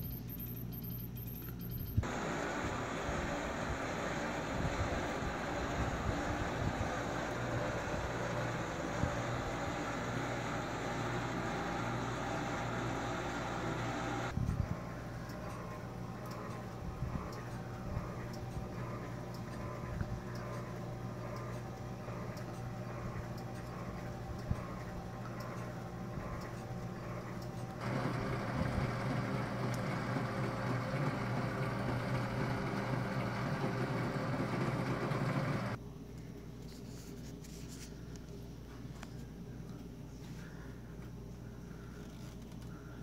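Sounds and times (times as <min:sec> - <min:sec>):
rotator motors whirring: 0:00.0 - 0:35.8
louder fuller whir: 0:02.0 - 0:14.4, 0:21.2 - 0:35.8.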